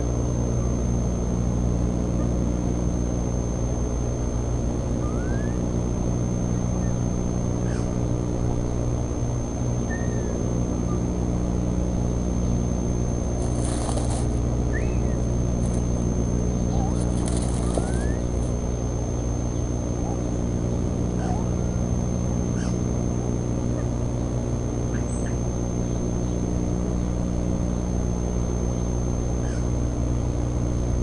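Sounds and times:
steady low hum: 0:00.0 - 0:31.0
faint bird chirps: 0:04.9 - 0:05.7, 0:06.5 - 0:08.0, 0:09.8 - 0:11.1, 0:14.7 - 0:15.4, 0:16.6 - 0:18.5, 0:24.9 - 0:26.4
rustle in straw: 0:13.4 - 0:14.4, 0:16.8 - 0:18.6.

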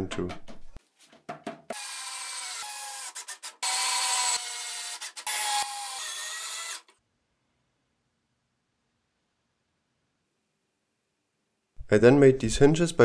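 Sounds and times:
cordless drill driving screws: 0:01.7 - 0:06.9.

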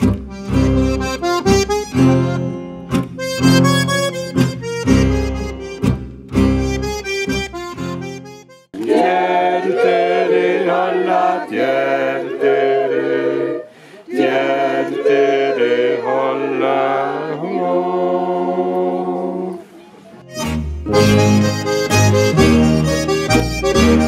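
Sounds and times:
voices singing in harmony: 0:08.8 - 0:19.8.

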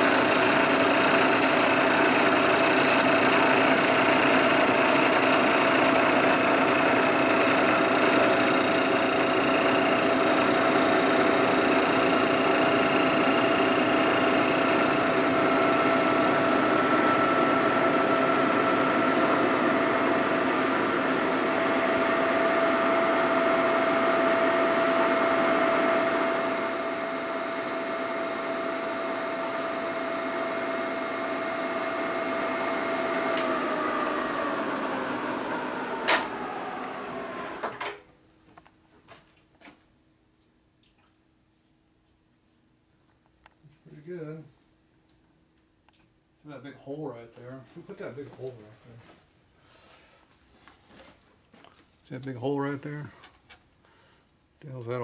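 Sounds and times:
milling machine cutting metal: 0:00.0 - 0:37.9.

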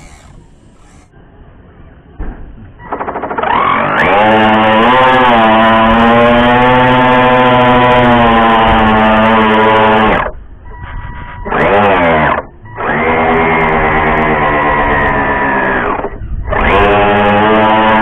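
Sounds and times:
small boat engine revving: 0:00.0 - 0:01.1, 0:03.8 - 0:10.3, 0:11.5 - 0:18.0.

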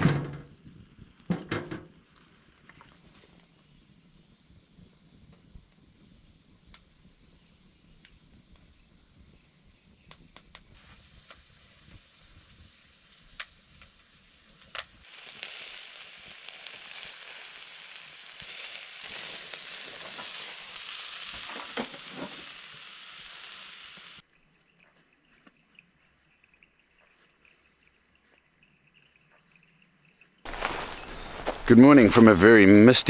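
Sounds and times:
fire popping and crackling: 0:00.0 - 0:24.2, 0:30.4 - 0:32.5
sausage sizzling on grill: 0:00.6 - 0:24.3, 0:30.4 - 0:32.2.

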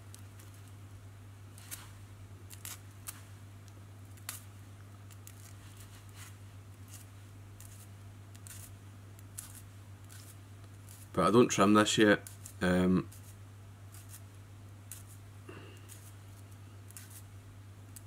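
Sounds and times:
small scissors snipping: 0:02.5 - 0:03.2, 0:04.1 - 0:04.5, 0:06.9 - 0:11.1, 0:12.2 - 0:13.3, 0:16.9 - 0:17.3.

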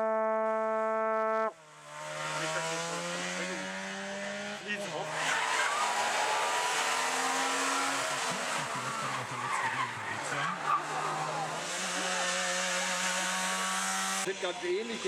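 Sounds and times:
rally car engines revving: 0:01.6 - 0:15.0
tyres squealing: 0:05.1 - 0:13.0.

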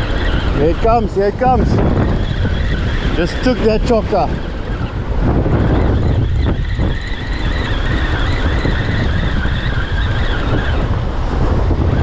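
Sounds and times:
surf washing over rocks: 0:00.0 - 0:05.4
fishing reel whine: 0:00.0 - 0:12.0
wind buffeting microphone: 0:00.0 - 0:12.0.

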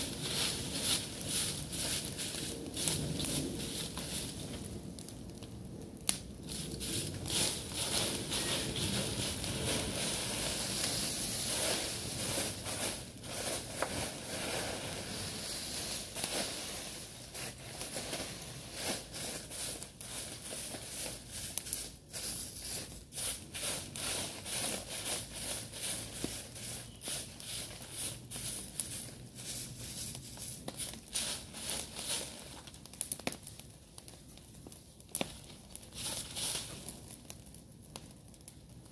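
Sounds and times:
broom sweeping dry leaves: 0:00.0 - 0:04.6, 0:06.5 - 0:33.0, 0:35.2 - 0:37.1.

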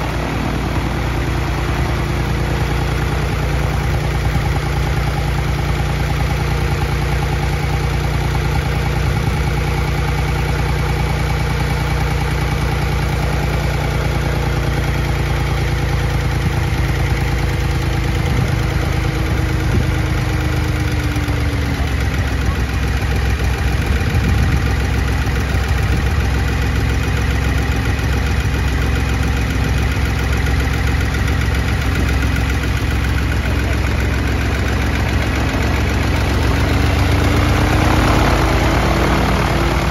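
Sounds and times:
aircraft engine running at low speed: 0:00.0 - 0:39.9.

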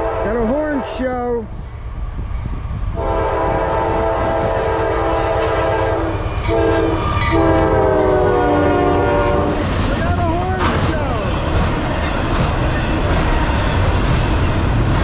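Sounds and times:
locomotive air horn blasts: 0:00.0 - 0:01.0, 0:03.0 - 0:09.6
freight train rumbling past: 0:00.0 - 0:15.0.

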